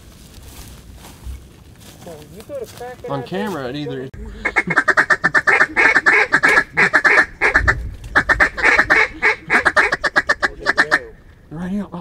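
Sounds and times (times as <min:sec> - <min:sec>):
duck call quacks and chatter: 0:04.3 - 0:11.2.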